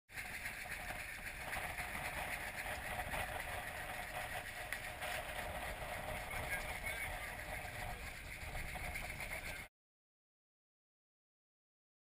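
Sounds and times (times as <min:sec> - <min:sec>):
wind rumbling on microphone: 0:00.1 - 0:09.7
rush of wind and water: 0:00.2 - 0:09.4.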